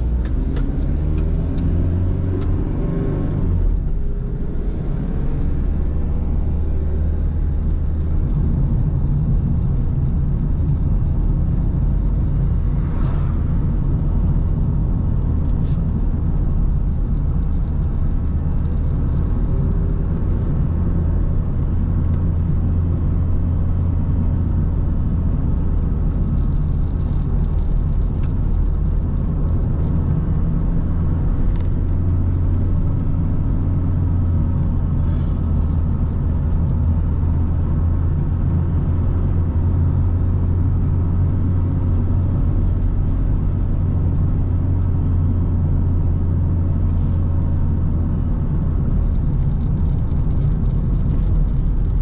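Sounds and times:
car engine and tyre rumble: 0:00.0 - 0:52.0.

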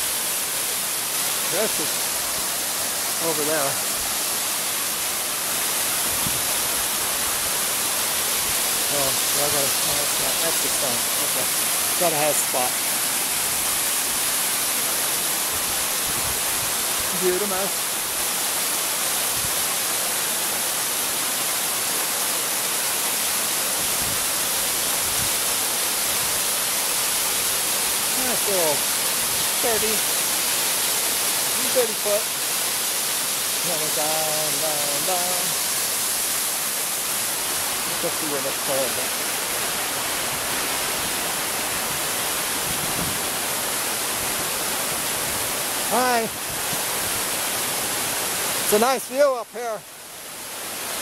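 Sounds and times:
waterfall rushing: 0:00.0 - 0:51.0.

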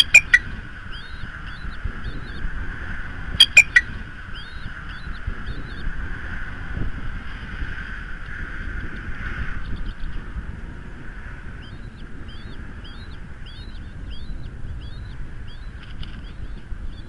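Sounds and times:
eagle chirping: 0:00.0 - 0:00.5, 0:03.4 - 0:03.9
background hum and rumble: 0:00.0 - 0:17.0.

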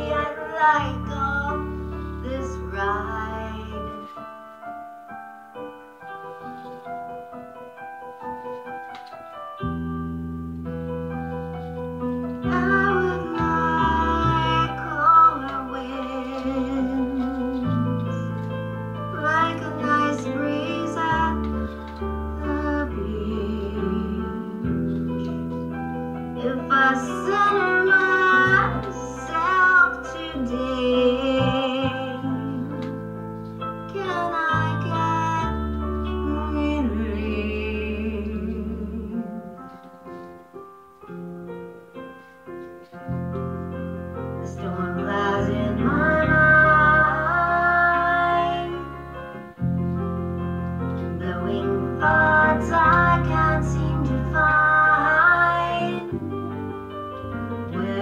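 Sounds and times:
woman singing with vibrato: 0:00.0 - 0:04.1, 0:12.4 - 0:18.3, 0:19.2 - 0:24.7, 0:26.4 - 0:32.9, 0:33.9 - 0:39.6, 0:44.4 - 0:49.0, 0:51.2 - 0:56.4, 0:57.7 - 0:58.0
keyboard holding low notes: 0:42.7 - 0:58.0.

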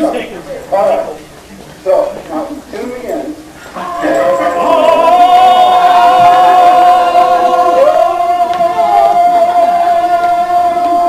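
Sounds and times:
voices singing in harmony: 0:03.7 - 0:11.0.

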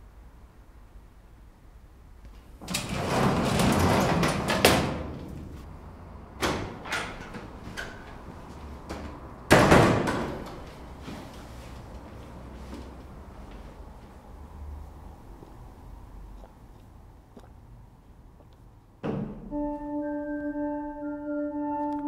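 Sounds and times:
door swinging and scraping: 0:02.6 - 0:05.6
door slam: 0:09.5 - 0:10.4.

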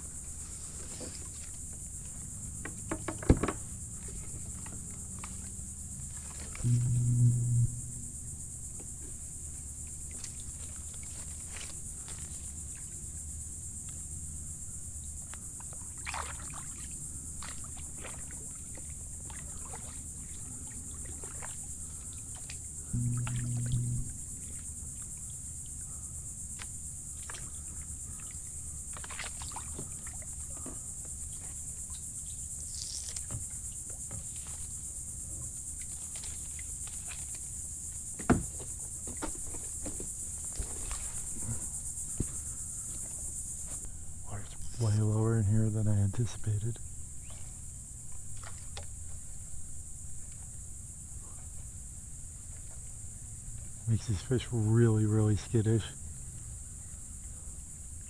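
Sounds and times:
insects buzzing: 0:00.0 - 0:58.0
low hum: 0:04.0 - 0:10.8, 0:22.7 - 0:28.6
kayak paddle splashing: 0:08.8 - 0:13.2, 0:15.4 - 0:25.7, 0:26.4 - 0:31.7, 0:47.1 - 0:50.3.

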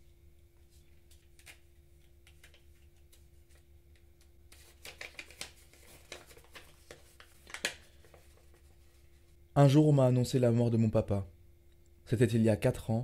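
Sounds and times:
paper crinkling: 0:00.6 - 0:03.7, 0:04.5 - 0:09.3.

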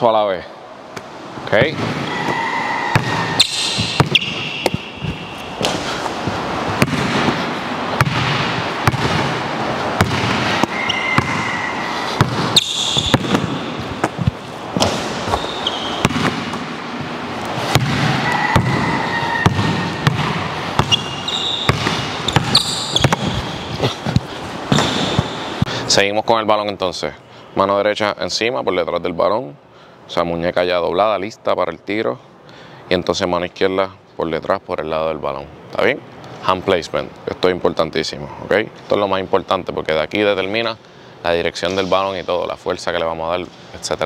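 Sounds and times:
sneakers squeaking: 0:01.6 - 0:25.7
basketball bouncing on wooden floor: 0:02.9 - 0:05.8, 0:06.7 - 0:07.4, 0:08.0 - 0:09.3, 0:10.0 - 0:11.5, 0:12.2 - 0:16.6, 0:17.7 - 0:23.5.

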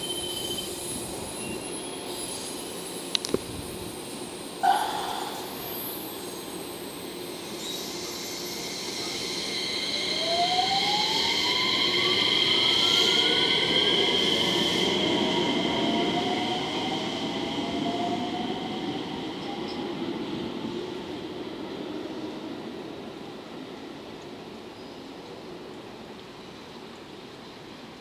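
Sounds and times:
train wheel squeal: 0:00.0 - 0:21.1.

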